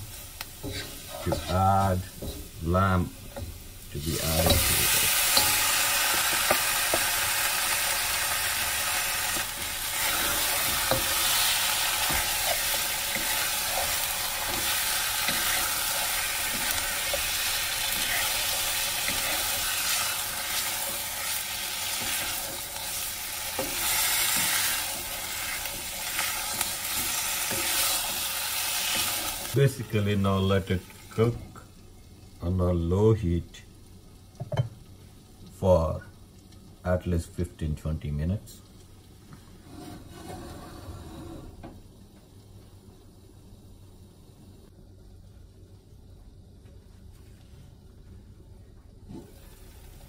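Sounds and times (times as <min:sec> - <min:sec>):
meat sizzling in hot oil: 0:00.0 - 0:32.4
wooden spatula scraping pan: 0:00.6 - 0:02.6, 0:39.6 - 0:41.6.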